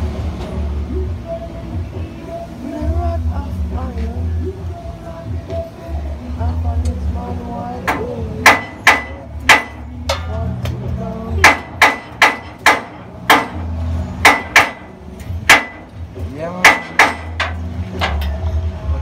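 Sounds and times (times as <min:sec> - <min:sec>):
hammer striking metal pipe: 0:07.9 - 0:10.5, 0:11.4 - 0:16.0, 0:16.6 - 0:18.4.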